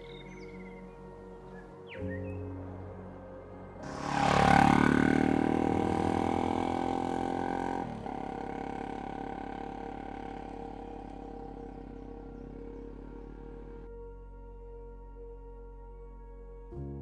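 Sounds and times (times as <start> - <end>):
motorcycle passing by: 3.8 - 13.9.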